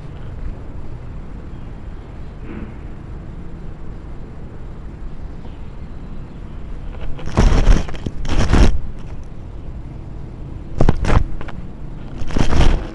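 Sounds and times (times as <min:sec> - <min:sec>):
fur scraping on microphone: 0:06.9 - 0:09.2, 0:10.8 - 0:12.9.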